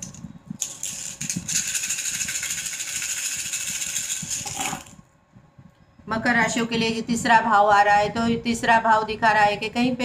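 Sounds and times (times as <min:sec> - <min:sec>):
shells shaken in hands clattering: 0:00.6 - 0:04.9.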